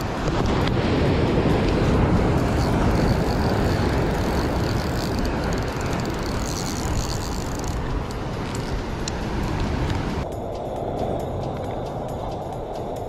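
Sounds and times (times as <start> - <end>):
surf rushing: 0.0 - 7.0
wind: 0.0 - 13.0
fishing reel whine: 1.8 - 8.8.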